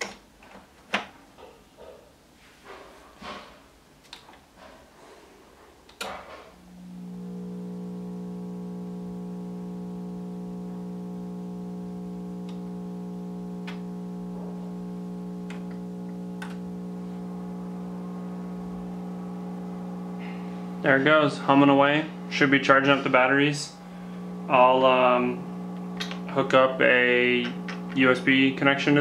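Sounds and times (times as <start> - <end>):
low steady hum: 6.6 - 29.0
power unit clicking on: 6.7 - 29.0.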